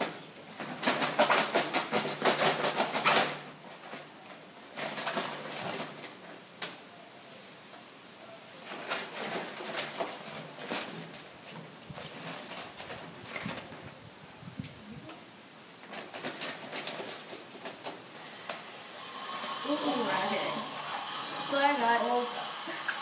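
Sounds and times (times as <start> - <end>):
markers rattling in paper bag: 0.6 - 4.0, 8.6 - 13.8, 15.8 - 18.0
paper bag rustling: 8.6 - 14.0, 15.8 - 18.5.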